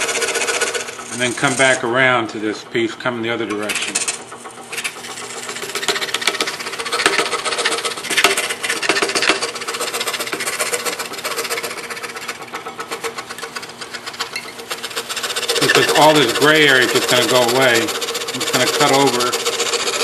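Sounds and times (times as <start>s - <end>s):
scroll saw rasping through wood: 0.0s - 2.1s, 3.3s - 20.0s
motor hum: 0.0s - 20.0s.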